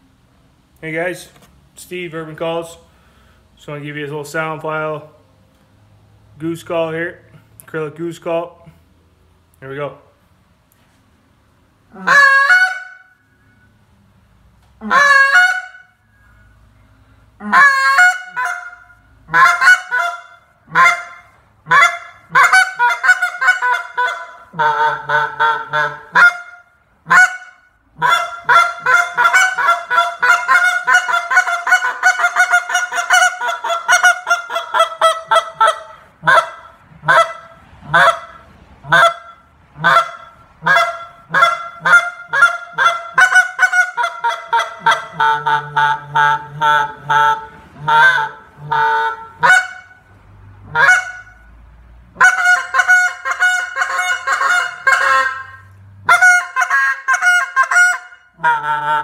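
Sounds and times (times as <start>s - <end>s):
goose call honking: 11.9s - 13.2s, 14.8s - 16.0s, 17.4s - 51.6s, 52.2s - 59.0s.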